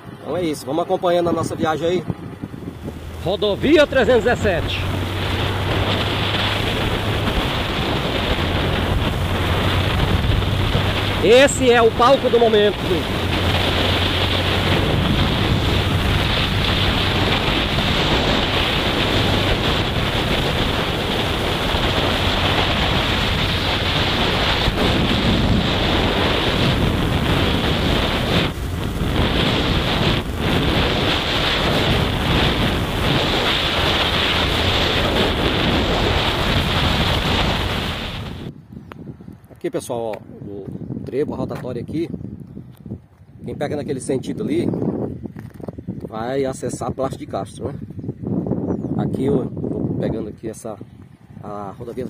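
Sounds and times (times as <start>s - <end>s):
motorcycle engine hum: 0.0s - 39.4s
wind buffeting microphone: 0.0s - 52.0s.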